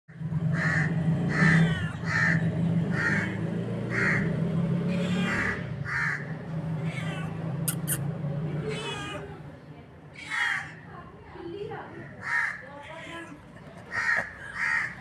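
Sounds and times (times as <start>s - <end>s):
short animal calls: 7.6s - 8.1s.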